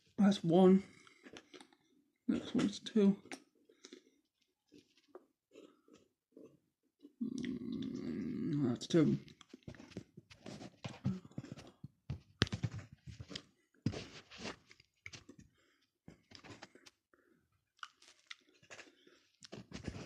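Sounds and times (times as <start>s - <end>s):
lips and tongue smacking: 7.3s - 8.2s
hands and clothing rustling: 9.6s - 15.3s.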